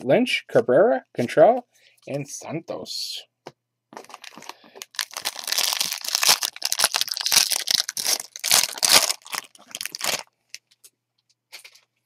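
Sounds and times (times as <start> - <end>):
foil wrapper crinkling and tearing: 4.0 - 10.3.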